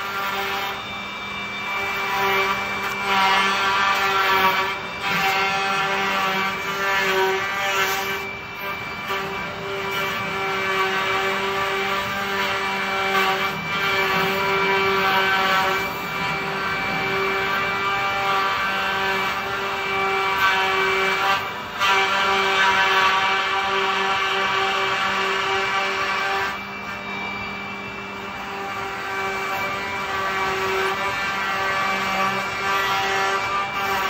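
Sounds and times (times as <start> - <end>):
spindles whining high pitch: 0.0 - 21.8, 22.4 - 34.0
cutters milling wood: 0.0 - 34.0.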